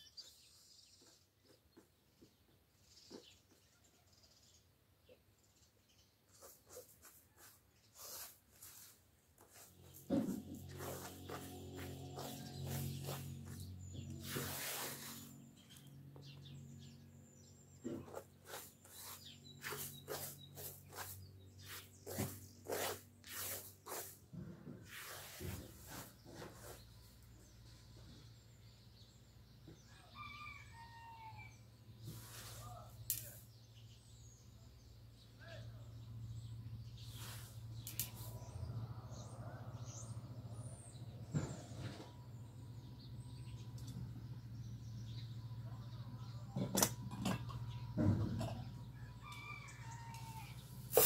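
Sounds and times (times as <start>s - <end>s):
dry grains swept across metal tray: 10.6s - 15.7s, 18.5s - 24.2s, 37.0s - 38.3s.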